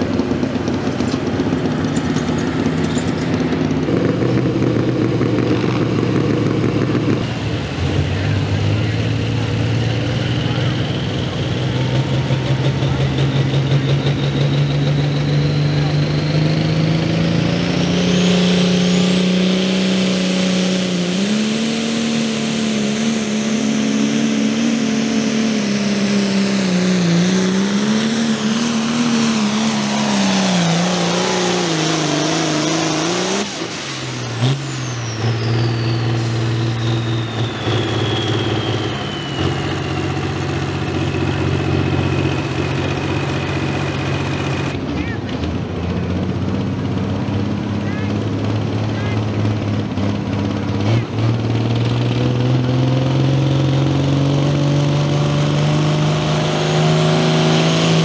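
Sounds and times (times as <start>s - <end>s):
tractor engine under full throttle: 0.0s - 58.0s
turbo whistle: 34.9s - 40.4s.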